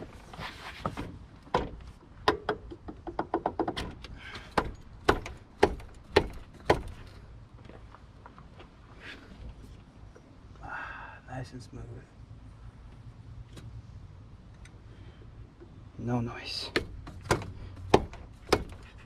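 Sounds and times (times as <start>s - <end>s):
metal clicks and knocks: 1.4s - 7.2s, 16.6s - 19.0s
sharp metal taps: 4.5s - 7.1s, 16.7s - 19.0s.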